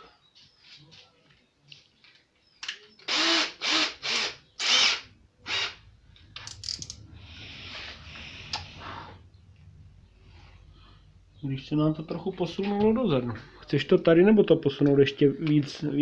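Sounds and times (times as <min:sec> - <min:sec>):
cordless drill whirring: 0:03.1 - 0:05.8.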